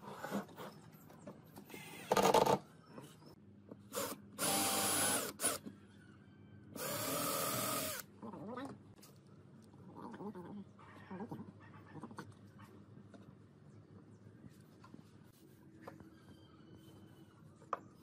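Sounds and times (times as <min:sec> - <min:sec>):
cordless drill whining: 0:04.0 - 0:05.6, 0:06.8 - 0:08.0.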